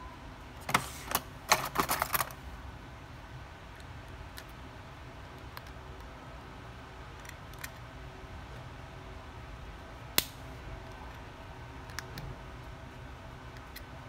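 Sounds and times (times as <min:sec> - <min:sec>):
phone parts clicking and rattling: 0:01.5 - 0:02.4.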